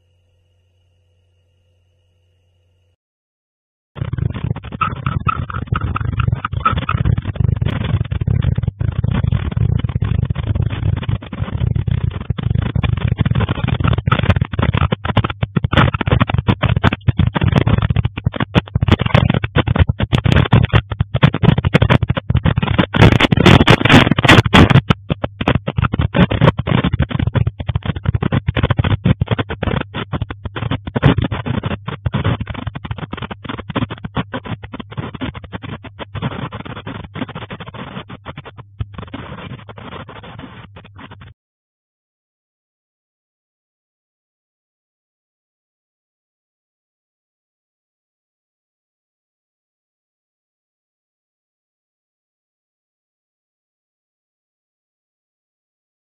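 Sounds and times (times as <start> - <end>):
building rattling in earthquake: 4.0 - 41.3.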